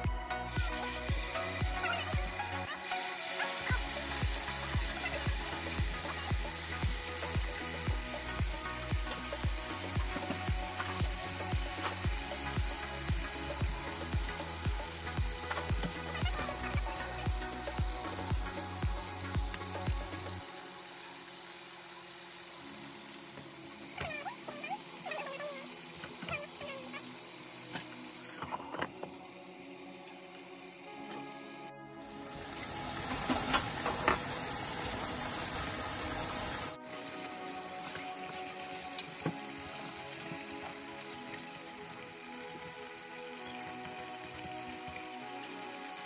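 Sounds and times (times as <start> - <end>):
music with kick drum beat: 0.0 - 2.4, 3.7 - 20.3
meat sizzling in a frying pan: 0.5 - 30.9, 32.0 - 46.0.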